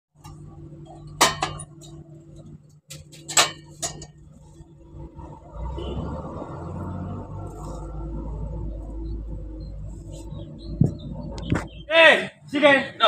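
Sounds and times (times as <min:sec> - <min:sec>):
metal pipe clinking and knocking: 0:00.2 - 0:02.0, 0:02.9 - 0:04.3
low rumbling: 0:03.6 - 0:12.5.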